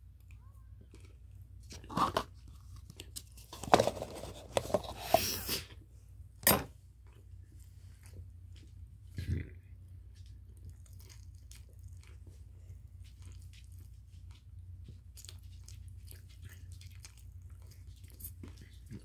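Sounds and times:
person chewing crunchy food: 10.1 - 19.0.

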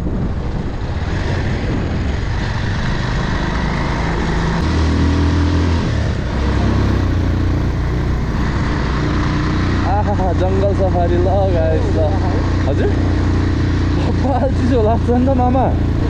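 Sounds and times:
motorcycle engine running: 0.0 - 16.0
wind rush on microphone: 0.0 - 16.0.

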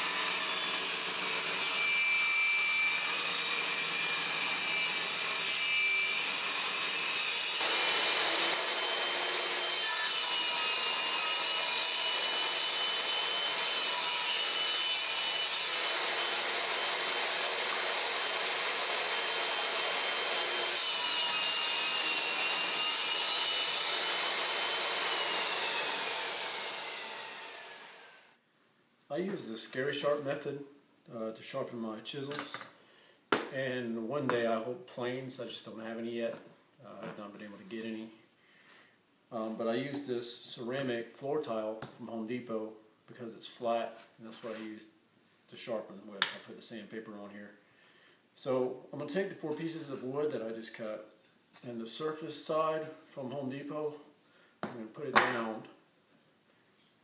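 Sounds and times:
table saw motor whine: 0.0 - 14.9, 15.6 - 28.3
saw blade cutting boards: 0.0 - 28.2, 54.6 - 55.6.

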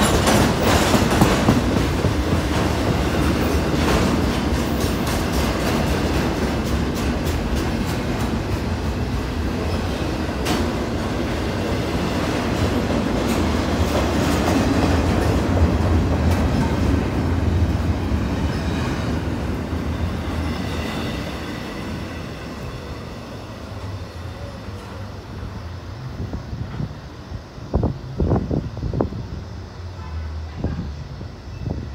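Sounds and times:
train wheel clacks: 0.0 - 19.2
train rumbling past: 0.0 - 31.9.

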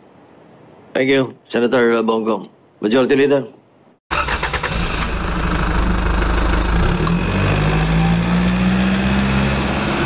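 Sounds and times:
mechanical rumble: 4.2 - 7.3.

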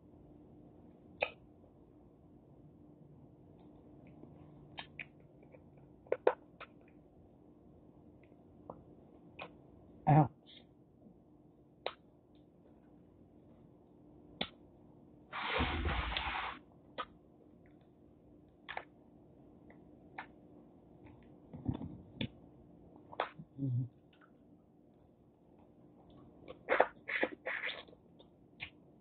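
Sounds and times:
lip smacks: 1.2 - 1.4.

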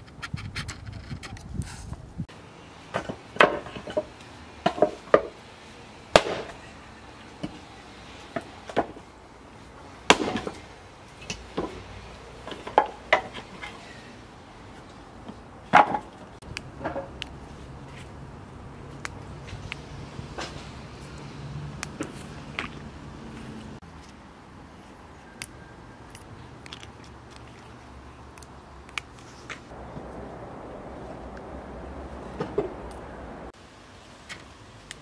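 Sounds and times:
axe chopping wooden boards: 2.9 - 5.3, 6.1 - 6.6, 8.4 - 9.0, 10.1 - 10.6, 15.7 - 16.1.

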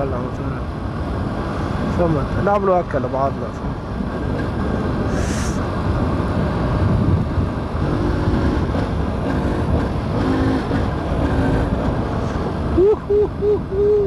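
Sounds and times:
wind rumble on microphone: 0.0 - 14.0
short hiss: 5.1 - 5.7.

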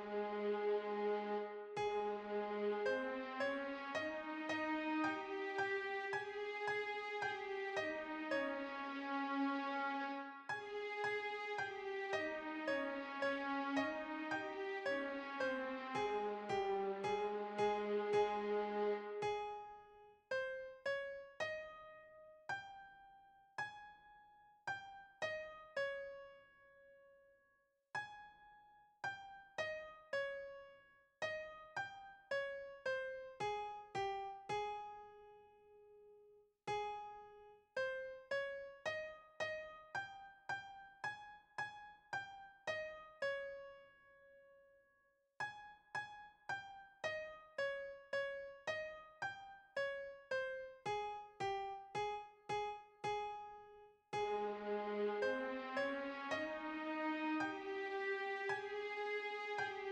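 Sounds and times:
slow piano melody: 0.0 - 24.1, 45.6 - 59.9.

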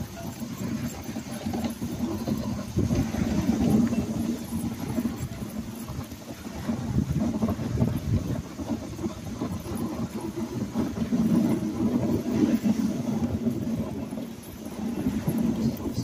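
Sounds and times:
sled runners scraping over snow: 0.0 - 16.0.

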